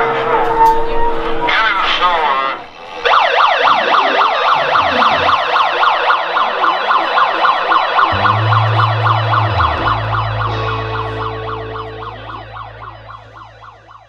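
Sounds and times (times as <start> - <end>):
megaphone siren yelping: 3.0 - 14.0
held low bass note: 8.1 - 14.0.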